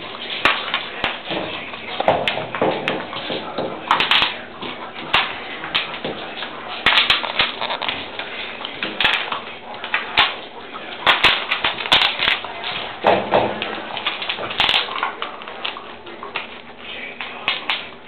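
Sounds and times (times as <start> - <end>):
puppies crunching ice cubes: 0.0 - 18.0
ice clicking on tile floor: 0.4 - 18.0.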